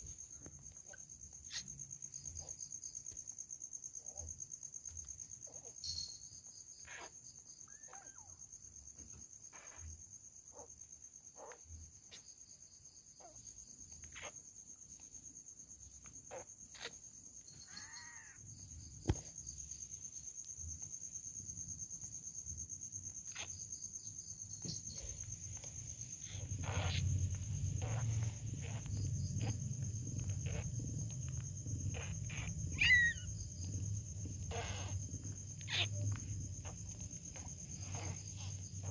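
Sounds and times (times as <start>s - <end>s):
kittens squeaking and mewing: 0.0s - 2.7s, 5.0s - 10.8s, 13.2s - 15.3s, 15.9s - 19.8s, 23.1s - 38.9s
crickets chirping: 0.0s - 38.9s
cat purring: 25.0s - 38.9s.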